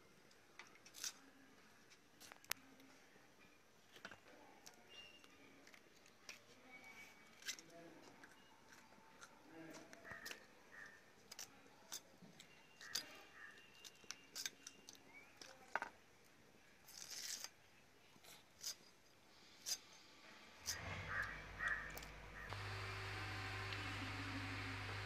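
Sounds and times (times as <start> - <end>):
crow cawing: 20.7 - 22.5.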